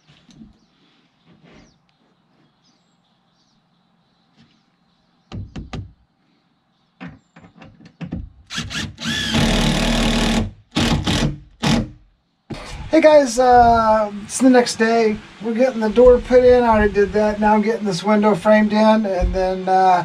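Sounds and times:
knocks on wood: 5.3s - 6.0s
drill motor whining into wood: 8.5s - 11.9s.

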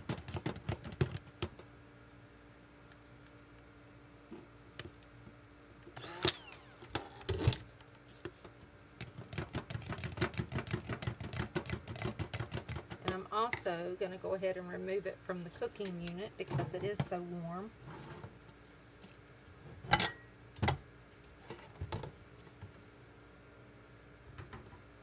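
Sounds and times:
faint steady hum: 0.0s - 25.0s
stick blender stirring thick batter: 9.0s - 13.3s.

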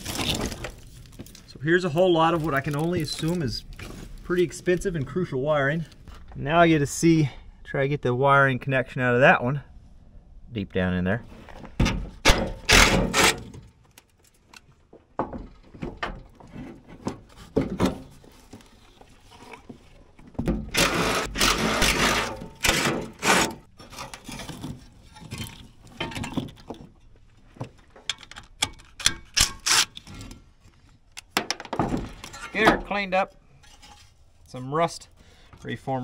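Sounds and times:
metal parts clinking and clunking: 20.6s - 30.4s, 31.2s - 32.9s.

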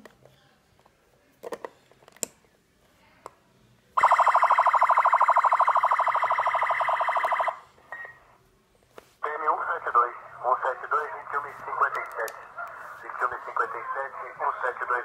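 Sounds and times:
toy siren fast electronic tone: 4.0s - 7.6s.

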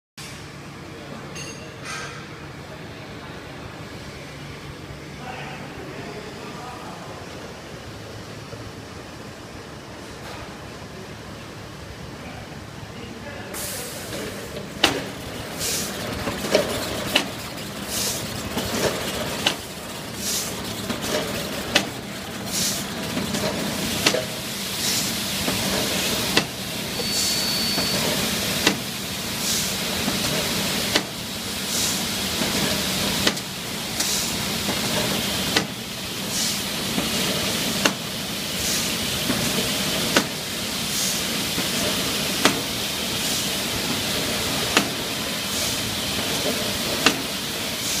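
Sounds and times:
machine clack: 14.1s - 24.4s, 41.5s - 42.8s, 43.8s - 45.1s, 45.8s - 47.4s.

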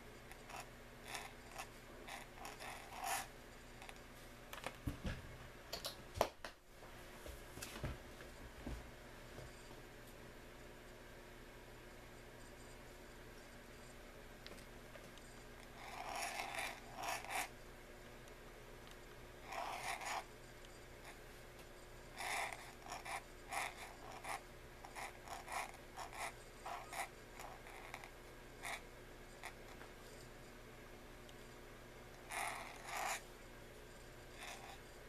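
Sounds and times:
pen nib scratching paper: 0.2s - 4.0s, 15.6s - 17.6s, 19.4s - 21.2s, 22.1s - 30.2s, 32.2s - 33.3s, 33.9s - 35.0s.

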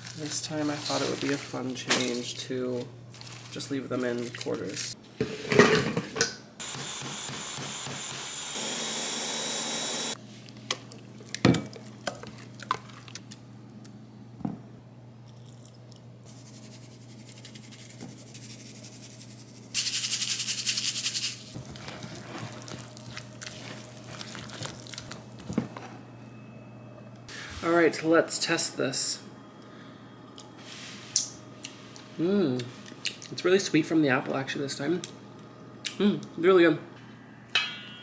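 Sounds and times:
blender running: 6.6s - 10.2s
kitchen knocks and clinks: 37.6s - 38.0s.

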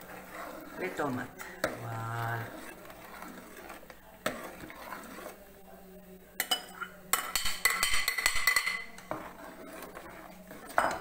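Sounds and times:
metal utensils clinking against pot: 0.8s - 2.8s, 6.4s - 11.0s.

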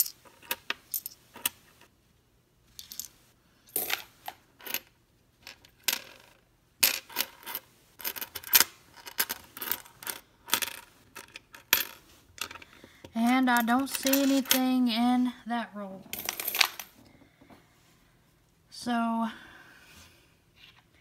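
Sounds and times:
coins clinking on wooden table: 0.0s - 1.8s, 2.8s - 14.7s, 16.1s - 17.0s.

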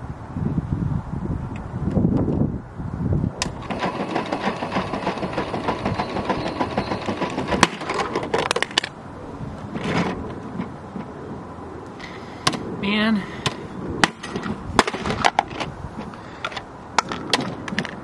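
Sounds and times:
toy washing machine motor rattling: 3.6s - 8.0s.

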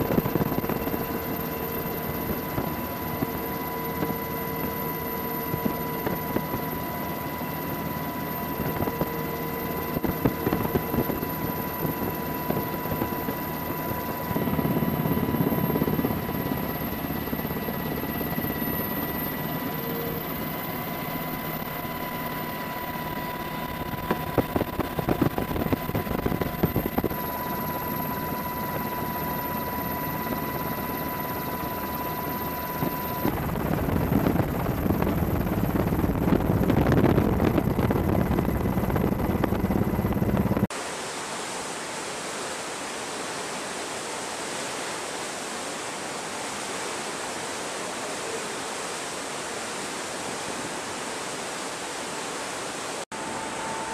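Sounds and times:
thin whine: 0.0s - 40.7s, 53.0s - 53.9s
helicopter rotor and engine drone: 0.0s - 40.8s, 42.7s - 53.9s
wind buffeting microphone: 23.7s - 27.2s, 32.8s - 40.7s.

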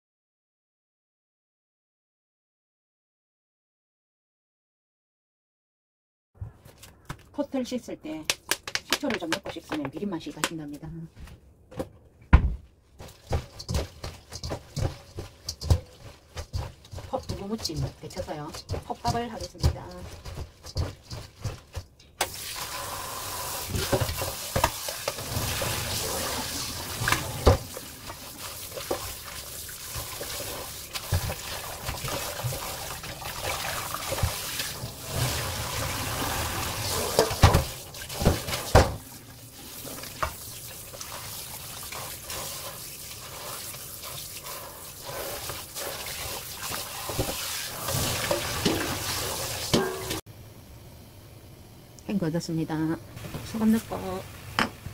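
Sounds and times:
tap water running into colander: 13.0s - 50.2s
seaweed rubbed by hand: 39.5s - 47.8s
metal colander knocks: 49.7s - 50.2s.

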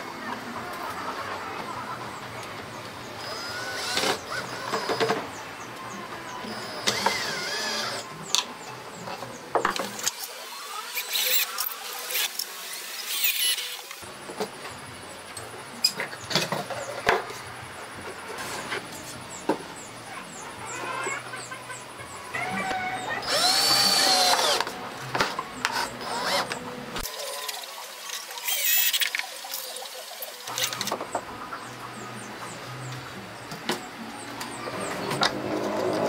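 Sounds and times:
cordless drill whirring: 3.2s - 5.1s, 6.5s - 8.0s, 10.0s - 14.0s, 23.2s - 24.7s, 25.6s - 26.6s.

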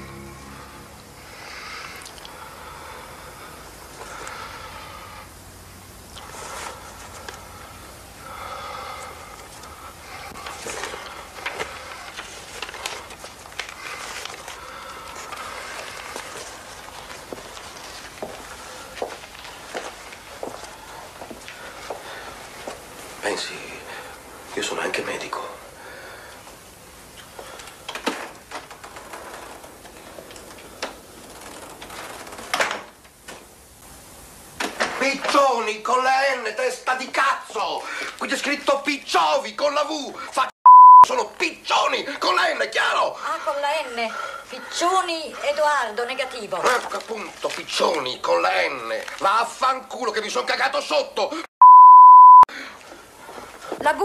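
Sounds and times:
paper envelope rustling: 10.4s - 20.8s, 46.6s - 49.6s.

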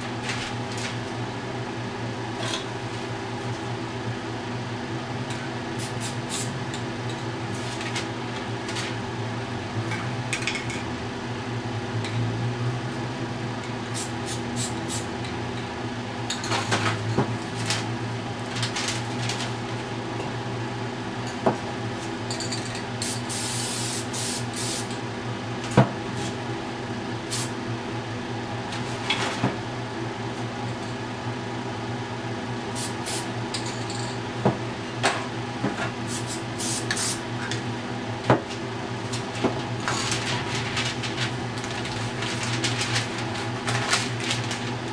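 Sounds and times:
spray paint cans hissing: 23.0s - 24.9s, 36.1s - 37.2s.

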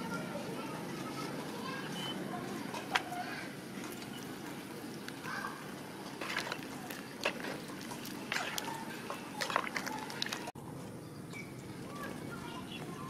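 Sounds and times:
soup sloshing: 1.9s - 10.6s.

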